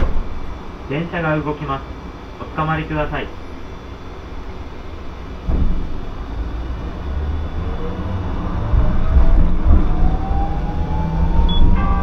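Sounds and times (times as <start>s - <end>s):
streetcar motors whining: 3.3s - 12.0s
wheels rumbling on rails: 5.4s - 12.0s.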